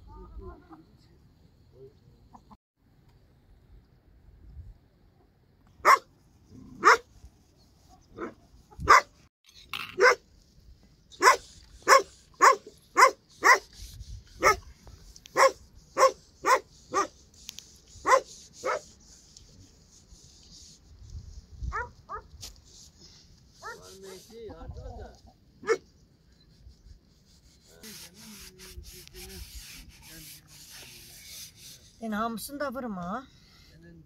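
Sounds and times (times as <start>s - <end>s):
dog barking: 5.8s - 6.1s, 6.8s - 7.0s, 8.2s - 9.1s, 10.0s - 10.2s, 11.2s - 13.7s, 14.4s - 14.6s, 15.4s - 17.1s, 18.1s - 18.8s, 21.7s - 22.3s, 25.6s - 25.8s.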